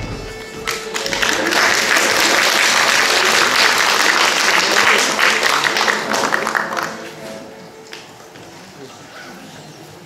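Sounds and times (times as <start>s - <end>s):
audience applauding: 0.4s - 7.2s.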